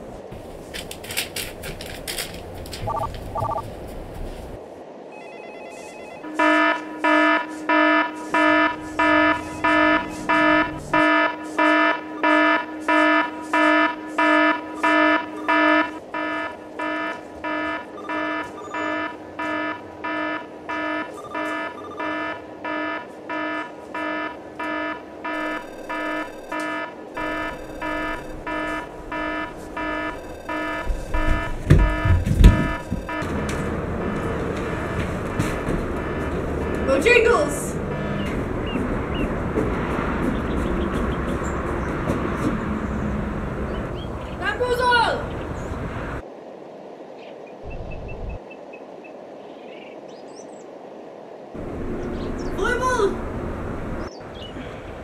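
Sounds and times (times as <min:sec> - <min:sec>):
electronic alarm beeping: 0:02.9 - 0:03.6, 0:05.1 - 0:39.2.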